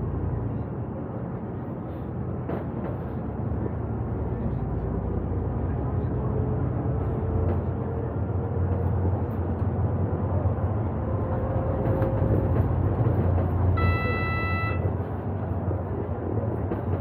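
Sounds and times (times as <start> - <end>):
bus engine and road rumble: 0.0 - 17.0
high steady beep: 13.8 - 14.9.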